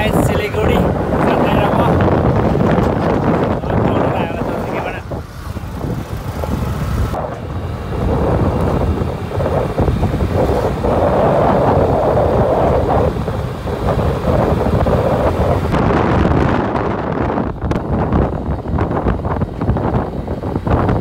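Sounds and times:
road noise: 0.0 - 21.0
wind buffeting microphone: 0.0 - 21.0
scooter engine: 1.8 - 15.8.

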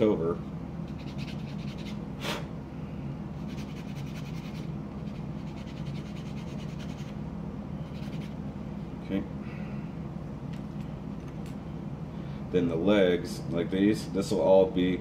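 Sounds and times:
steady low hum: 0.0 - 15.0
scratchy sanding strokes: 0.9 - 2.0, 3.4 - 7.2, 7.8 - 8.3.

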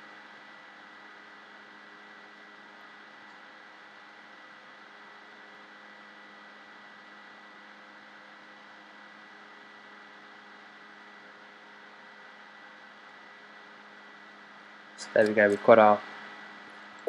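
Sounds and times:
electrical hum: 0.0 - 17.0
thin high whine: 9.2 - 17.0.

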